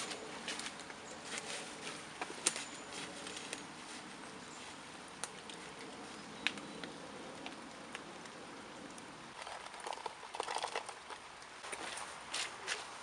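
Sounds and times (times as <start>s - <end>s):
campfire crackling and popping: 4.9s - 13.0s.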